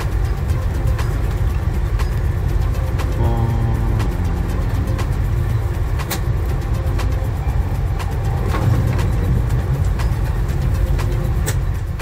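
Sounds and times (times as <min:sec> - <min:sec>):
train rumble inside carriage: 0:00.0 - 0:12.0
wheels clicking on track: 0:00.0 - 0:12.0.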